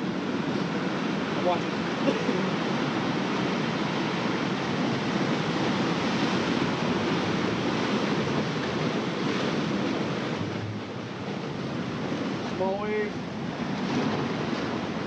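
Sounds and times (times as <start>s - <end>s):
surf breaking on rocks: 0.0s - 15.0s.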